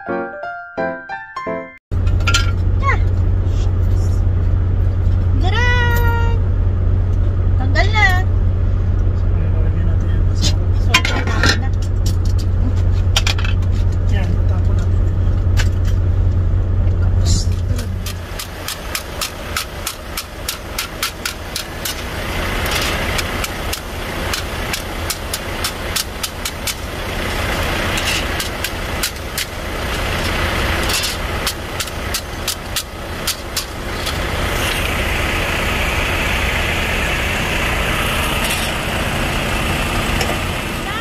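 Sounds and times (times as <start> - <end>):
truck engine idling: 1.9 - 41.0.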